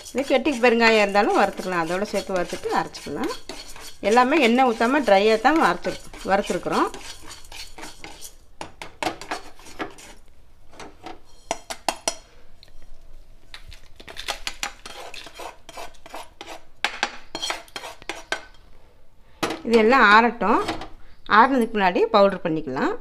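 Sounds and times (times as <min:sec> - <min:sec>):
spatula scraping salt in a pan: 0:00.0 - 0:08.4, 0:09.2 - 0:10.2, 0:11.3 - 0:11.8, 0:14.1 - 0:16.7, 0:17.3 - 0:18.4.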